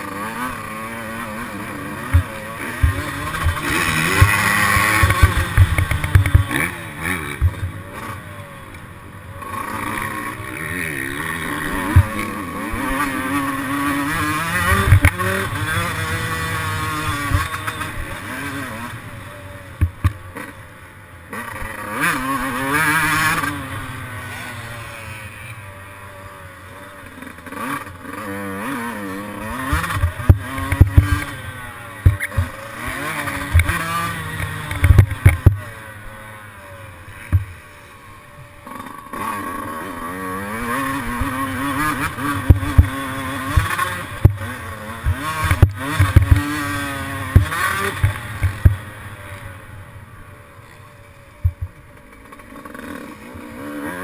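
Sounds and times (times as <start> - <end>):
two-stroke motorcycle engine revving: 0.0 - 54.0
short thumps: 51.4 - 51.8.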